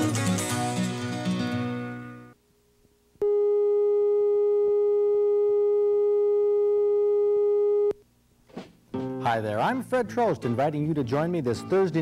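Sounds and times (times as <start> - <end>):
single-pitch test tone: 3.2 - 8.0.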